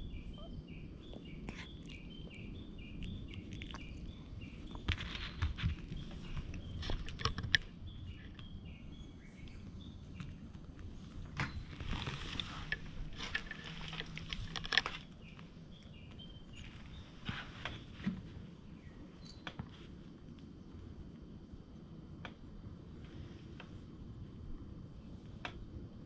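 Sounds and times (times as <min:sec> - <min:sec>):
birds chirping: 0:00.0 - 0:19.6
soft rustling: 0:03.3 - 0:07.7, 0:10.2 - 0:15.5, 0:16.5 - 0:18.6.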